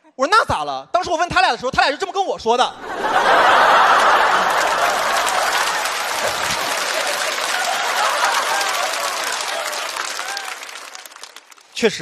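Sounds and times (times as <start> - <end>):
audience laughing: 2.7 - 11.3
audience applauding: 2.9 - 12.0.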